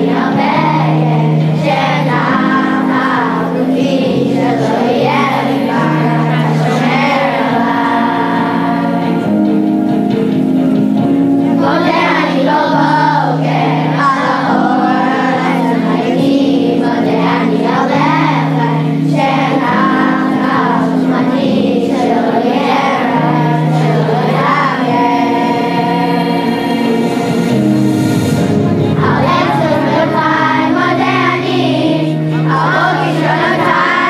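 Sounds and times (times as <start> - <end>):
children's choir singing: 0.0 - 34.0
instrumental accompaniment: 0.0 - 34.0.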